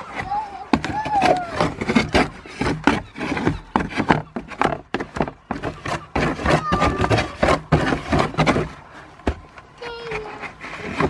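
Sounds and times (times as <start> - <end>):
cardboard box crackling and knocking: 0.0 - 11.0.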